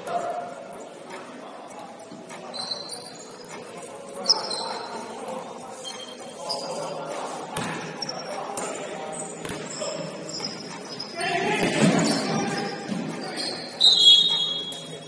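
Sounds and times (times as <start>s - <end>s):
players' voices: 0.0s - 15.0s
sneaker squeaks on court: 2.4s - 3.6s, 4.2s - 5.0s, 7.6s - 8.4s, 9.2s - 15.0s.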